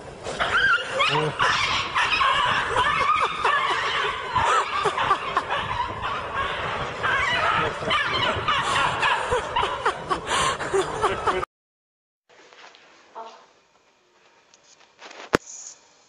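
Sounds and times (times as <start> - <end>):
people laughing: 1.0 - 11.5.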